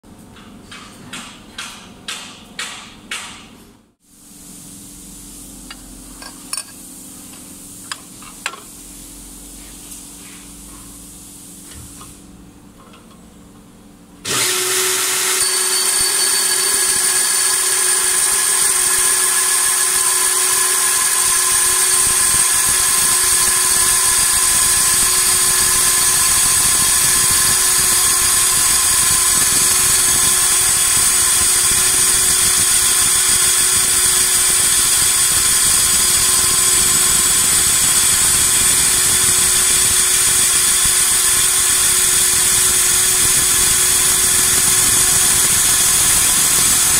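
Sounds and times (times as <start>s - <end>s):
abrasive belt grinding metal pipe: 14.3s - 46.9s.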